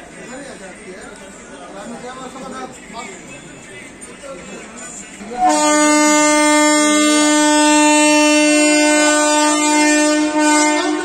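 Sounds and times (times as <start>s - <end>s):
locomotive air horn blast: 5.2s - 11.0s.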